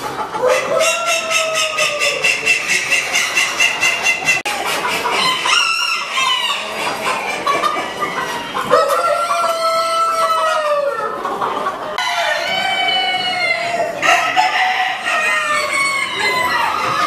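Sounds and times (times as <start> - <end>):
hens clucking: 0.0 - 17.0
cockerels crowing: 0.4 - 4.5, 5.1 - 6.8, 12.0 - 17.0.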